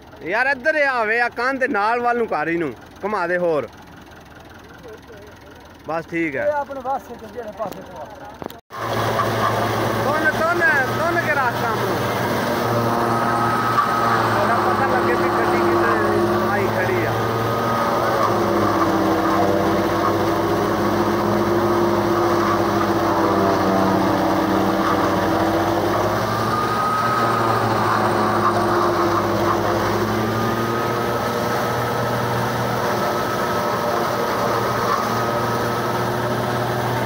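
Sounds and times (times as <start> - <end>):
tractor diesel engine under load: 0.0 - 37.0
forage chopper cutting stalks: 8.8 - 37.0.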